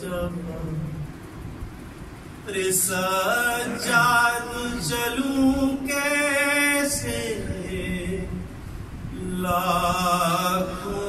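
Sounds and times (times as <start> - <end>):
man chanting into a microphone: 2.5 - 8.5, 9.1 - 11.0.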